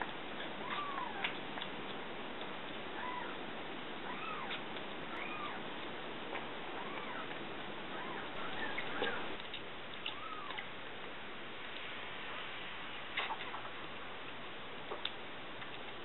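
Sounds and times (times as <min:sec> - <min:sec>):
kitten mewing: 0:00.6 - 0:01.4, 0:03.0 - 0:03.4, 0:04.1 - 0:05.6, 0:06.8 - 0:07.3.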